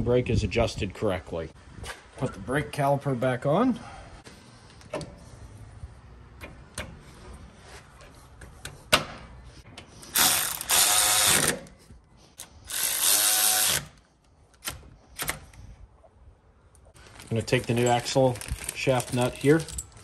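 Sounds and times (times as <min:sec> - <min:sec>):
ratchet turning bolts: 0:10.1 - 0:11.6, 0:12.6 - 0:14.0.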